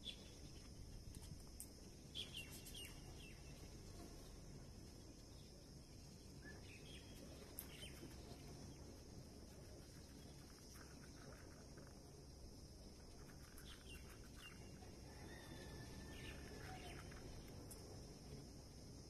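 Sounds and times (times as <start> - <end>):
faint outdoor background noise: 0.0 - 19.0.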